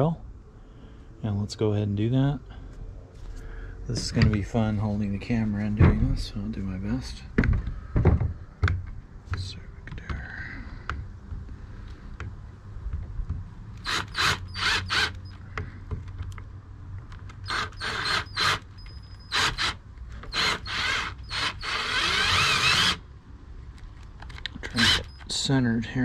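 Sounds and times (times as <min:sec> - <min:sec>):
power drill boring into wood: 0:13.8 - 0:15.3, 0:17.4 - 0:23.0, 0:24.7 - 0:25.2.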